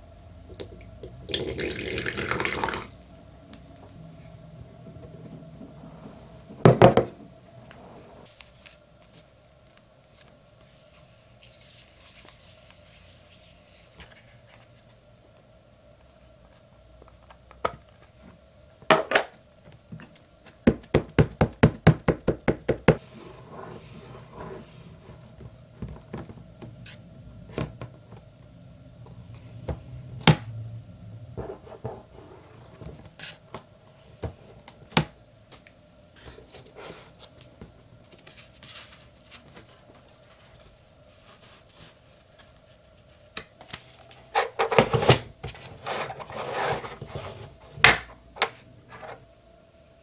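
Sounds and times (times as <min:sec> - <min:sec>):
faint steady hum: 0:00.0 - 0:50.0.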